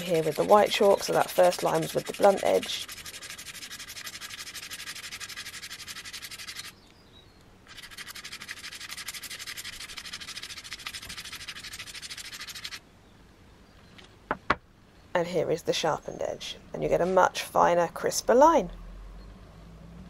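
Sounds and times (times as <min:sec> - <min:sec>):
chalk scraping across razor blades: 0:00.0 - 0:06.8, 0:07.7 - 0:12.8.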